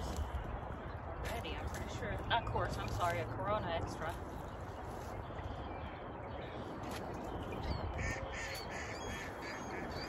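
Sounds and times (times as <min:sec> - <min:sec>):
bird harsh calls: 0:07.5 - 0:10.0.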